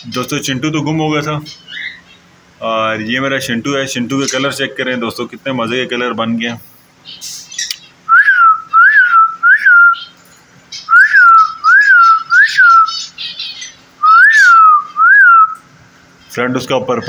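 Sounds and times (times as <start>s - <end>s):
faint bird chatter: 0.0s - 17.0s
loud whistled bird notes: 7.1s - 15.7s.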